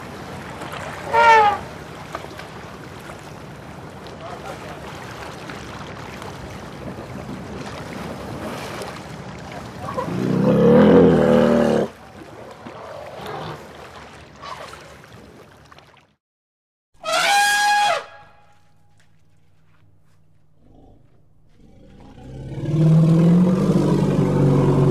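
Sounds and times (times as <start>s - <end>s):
recorded mammoth trumpeting: 1.1s - 1.6s, 9.9s - 11.9s, 17.0s - 19.0s, 19.8s - 24.9s.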